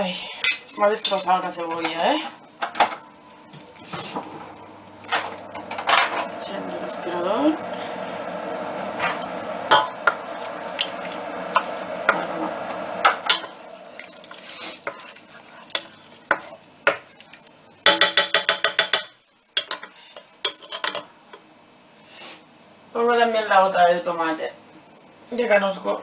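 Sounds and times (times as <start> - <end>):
extractor hood hum: 3.0 - 14.8
wooden spatula scraping pot: 3.8 - 8.0, 9.9 - 18.0
spatula knocking pot: 14.8 - 17.2, 17.8 - 21.0.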